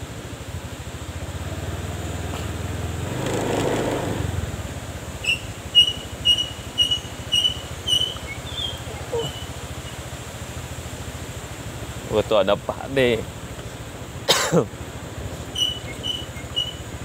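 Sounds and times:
scooter engine running: 0.0s - 17.0s
bird chirping: 5.2s - 10.0s, 15.4s - 17.0s.

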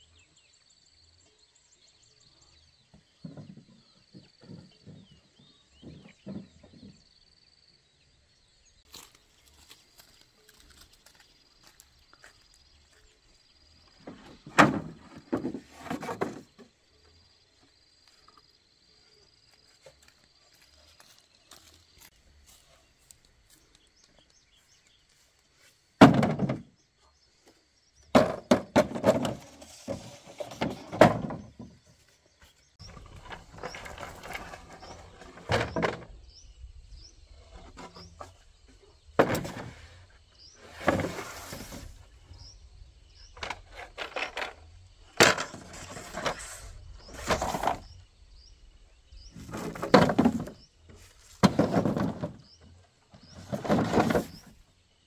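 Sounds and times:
bamboo poles knocking together: 26.0s - 26.7s, 28.1s - 31.8s, 43.4s - 46.5s, 49.4s - 50.6s.

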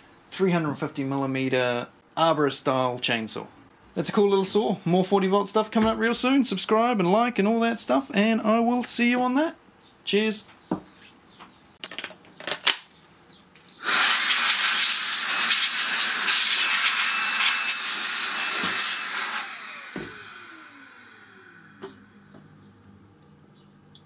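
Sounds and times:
electric blower whining and blowing: 13.8s - 23.0s.

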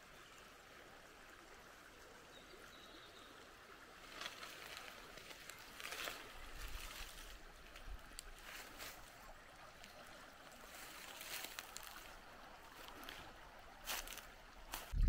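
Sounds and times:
brook flowing: 0.0s - 15.0s
soft rustles: 4.0s - 9.1s.

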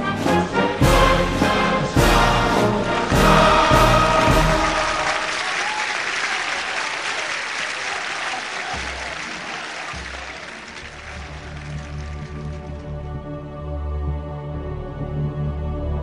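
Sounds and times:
crowd applauding: 2.6s - 13.1s
low soft music tone: 10.8s - 16.0s.

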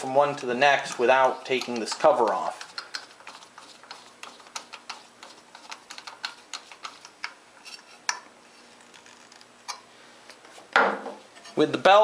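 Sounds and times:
screwdriver clicking on metal: 0.3s - 3.0s.

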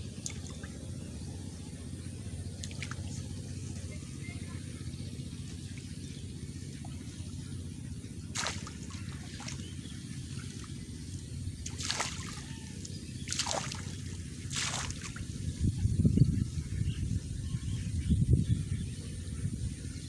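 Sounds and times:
steady low rumble: 0.0s - 20.0s
shallow water splashes: 8.2s - 15.4s.

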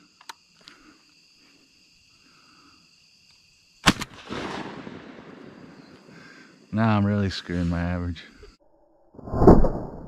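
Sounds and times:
insects buzzing: 0.0s - 8.6s
shotgun blast: 3.8s - 5.4s.

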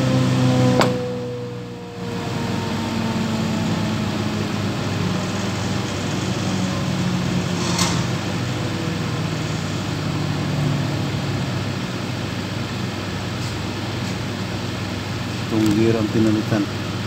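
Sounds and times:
machine whine winding down: 0.0s - 13.1s
woodworking machinery humming: 0.0s - 17.0s.

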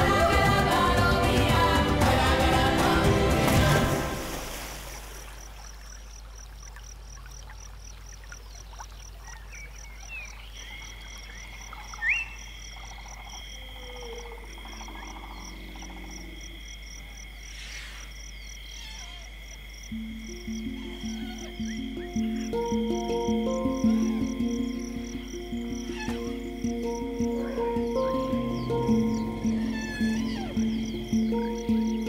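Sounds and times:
high insect trills: 2.3s - 32.0s
insect chirping: 4.0s - 32.0s
frog calls: 5.4s - 32.0s.

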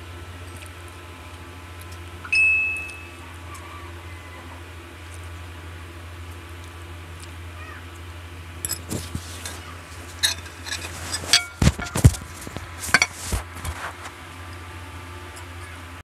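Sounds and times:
steady low hum: 0.0s - 16.0s
cutlery scraping ceramic plates: 8.6s - 14.2s.

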